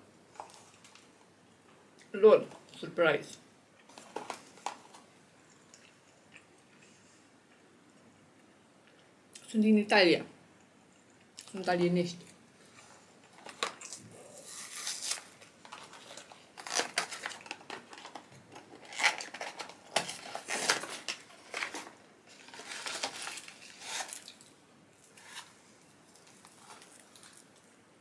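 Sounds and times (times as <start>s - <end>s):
food packaging crinkling: 3.8s - 6.0s, 12.6s - 27.8s.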